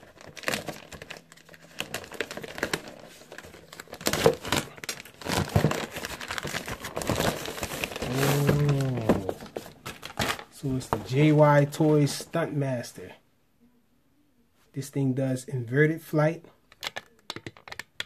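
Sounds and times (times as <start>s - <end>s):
plastic packaging crinkling and tearing: 0.0s - 12.3s.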